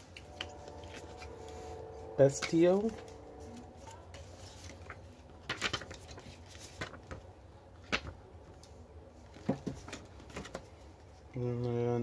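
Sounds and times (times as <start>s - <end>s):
paper rustling and flicking: 0.0s - 10.9s
faint low hum: 0.0s - 12.0s.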